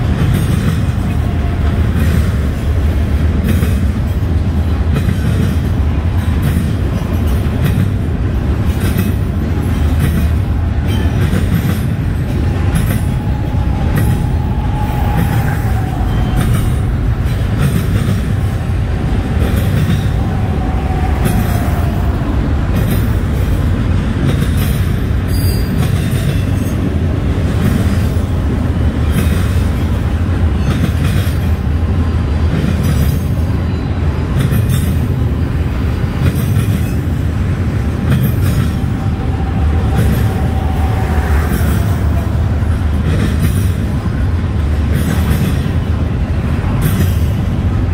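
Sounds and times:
wheels clicking over rail joints: 0.0 - 31.8, 36.0 - 47.9
freight train cars rumbling past: 0.0 - 47.9
faint wheel squeal: 25.3 - 25.8.

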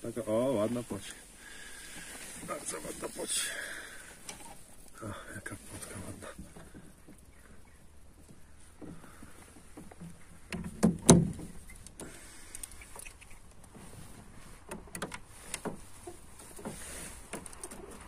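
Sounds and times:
loud thumps in a boat: 9.9 - 11.6.

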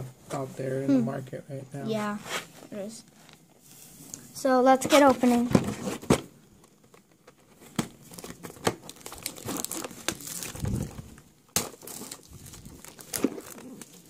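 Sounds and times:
plastic wrap tearing and crinkling: 6.8 - 14.0.

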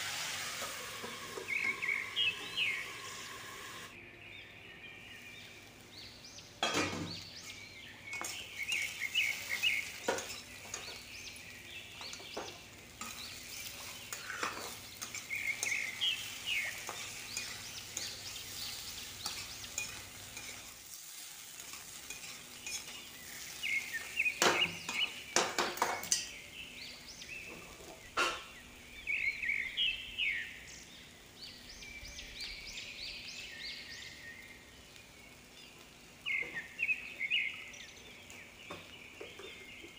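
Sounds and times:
vegetables sizzling in a pan: 0.0 - 4.0, 5.1 - 39.9
birds chirping: 0.6 - 39.9
spatula scraping a pan: 8.1 - 11.0, 12.0 - 26.3.

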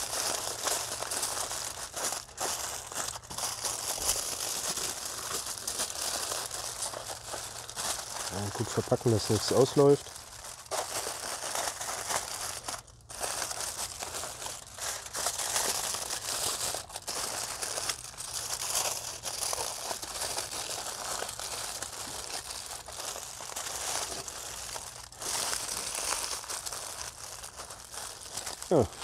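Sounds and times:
aluminium foil crinkling: 0.0 - 29.0.

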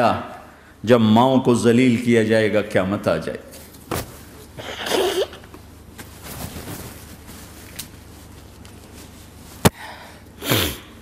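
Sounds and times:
low steady hum: 0.0 - 11.0
man breathing: 9.7 - 10.9.

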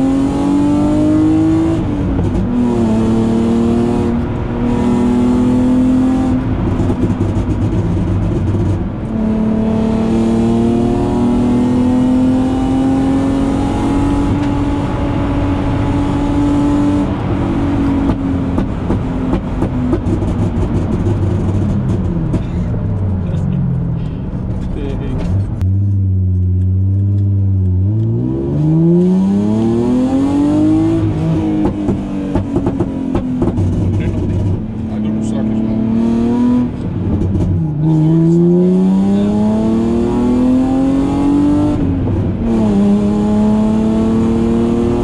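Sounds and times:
car engine revving: 0.0 - 45.0
exhaust pops and crackles: 6.4 - 9.2, 18.0 - 28.1, 31.6 - 35.4.

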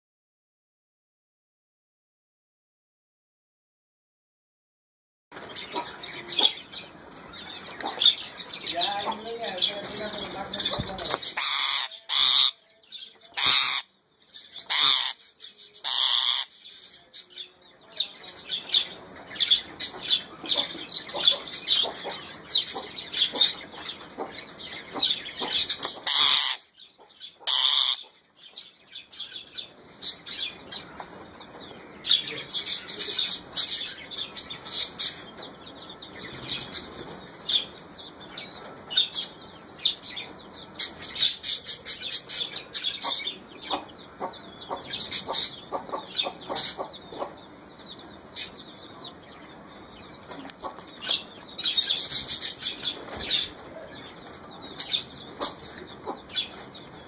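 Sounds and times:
parakeet screeching: 11.3 - 12.6, 13.4 - 13.9, 14.6 - 16.6, 26.0 - 26.7, 27.4 - 28.1.

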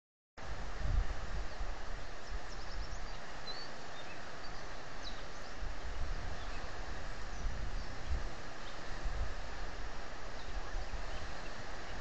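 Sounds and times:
wind on microphone: 0.4 - 12.0
faint bird chirps: 1.4 - 8.9, 10.3 - 12.0.

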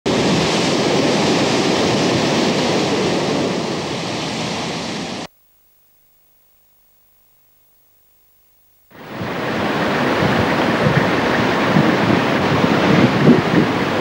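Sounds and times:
surf and breaking waves: 0.1 - 5.3, 8.9 - 14.0.

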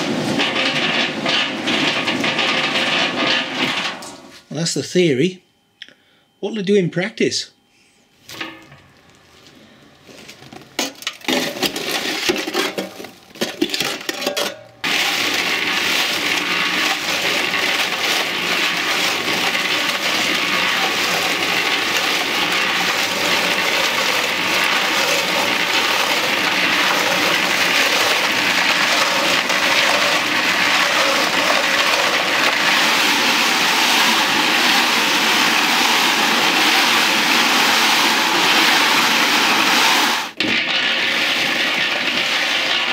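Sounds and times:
irregular clattering and knocks: 0.0 - 4.3
ballast rattling in rotating drum: 0.0 - 4.4, 10.7 - 42.9.

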